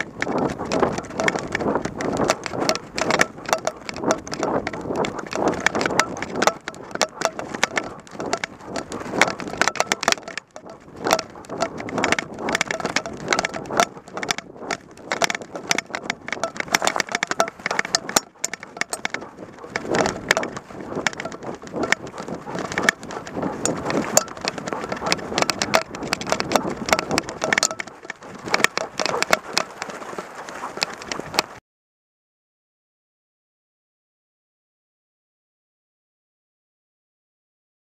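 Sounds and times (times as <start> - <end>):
rustling through undergrowth: 2.3 - 31.6.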